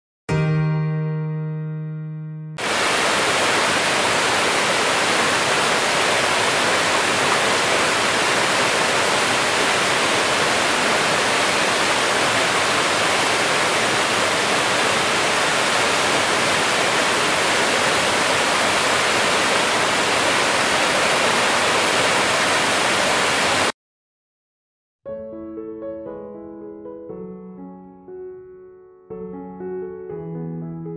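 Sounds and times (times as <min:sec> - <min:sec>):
waterfall rushing: 0:02.6 - 0:23.7.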